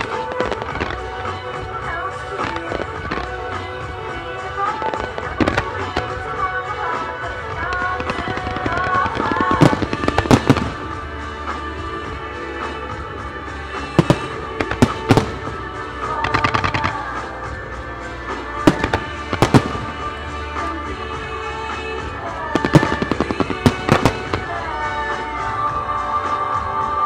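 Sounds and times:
firework bangs: 0.0s - 12.0s, 13.5s - 25.6s
firework crackling: 0.0s - 27.0s
music: 0.0s - 27.0s.

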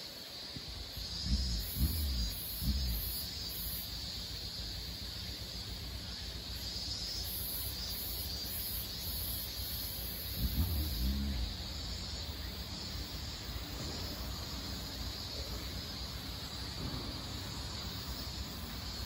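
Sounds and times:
crickets chirping: 0.0s - 19.0s
low outdoor rumble: 0.7s - 19.0s
low thumps: 1.0s - 3.2s, 10.3s - 12.0s.

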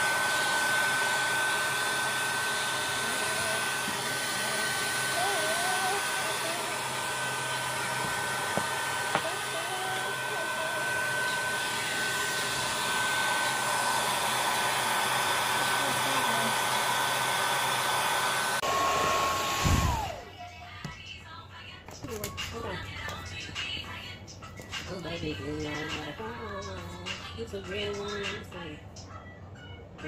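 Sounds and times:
hair dryer blowing: 0.0s - 20.4s.

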